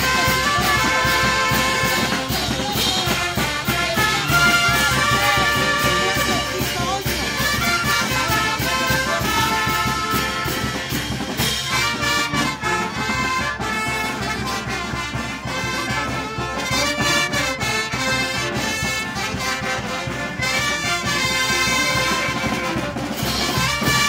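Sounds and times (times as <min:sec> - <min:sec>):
brass band playing: 0:00.0 - 0:24.0
pounding bass drum: 0:00.0 - 0:24.0.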